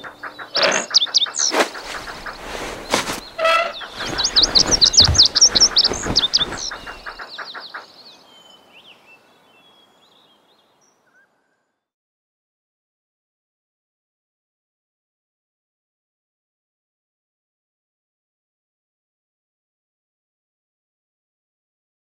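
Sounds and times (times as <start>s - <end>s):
high bird-like chirps: 0.0s - 7.8s.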